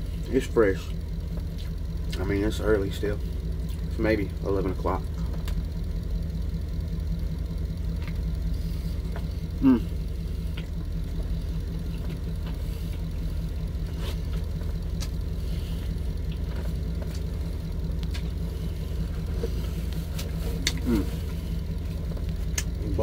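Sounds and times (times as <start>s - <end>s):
truck engine idling: 0.0s - 23.0s
chewing: 8.0s - 10.8s, 11.8s - 22.8s
person humming: 9.6s - 10.0s, 20.6s - 21.3s.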